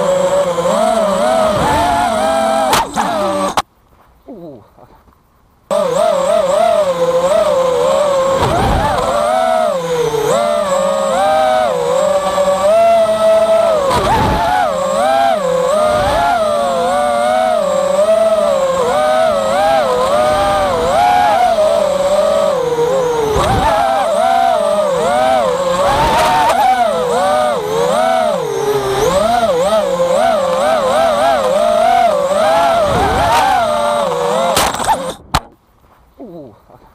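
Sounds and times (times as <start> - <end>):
quadcopter motors whining: 0.0 - 3.6, 5.7 - 35.5.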